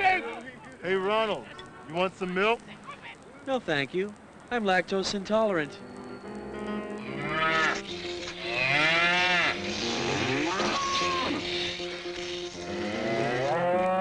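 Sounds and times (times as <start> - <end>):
cow mooing: 7.1 - 11.4, 12.7 - 14.0.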